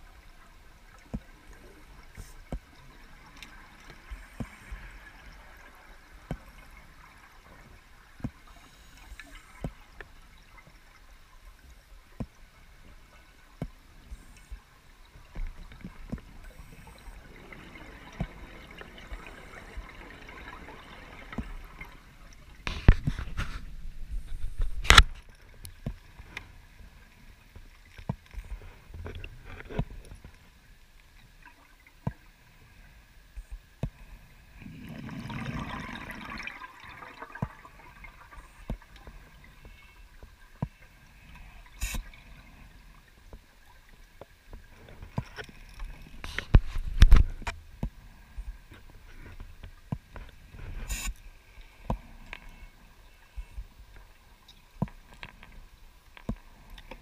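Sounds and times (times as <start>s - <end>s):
underwater clicks and knocks: 15.1s - 22.0s, 22.6s - 26.5s, 27.5s - 30.4s, 44.2s - 51.2s, 51.8s - 52.5s, 53.4s - 57.0s
gurgling bubbles: 15.2s - 23.3s, 34.5s - 40.2s.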